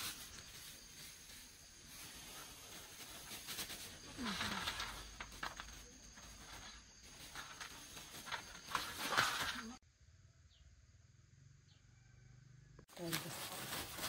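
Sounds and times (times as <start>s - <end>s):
dry corn snacks crackling: 0.0s - 9.8s, 12.9s - 14.0s
plastic bags rustling: 0.0s - 9.8s, 12.9s - 14.0s.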